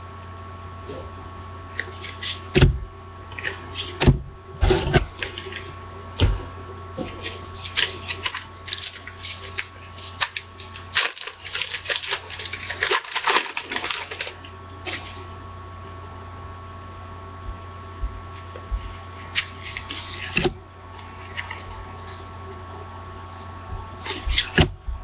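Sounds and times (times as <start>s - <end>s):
cards sliding and shuffling: 1.8s - 2.5s, 7.0s - 15.3s
card pack wrapper crinkling and tearing: 7.2s - 15.2s.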